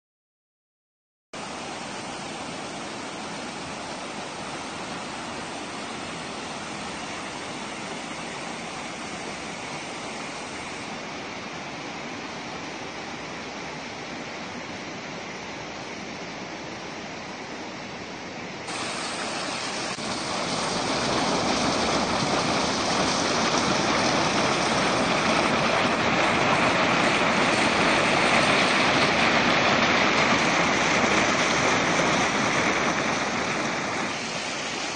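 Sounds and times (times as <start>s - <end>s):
waterfall rushing: 1.4s - 34.9s.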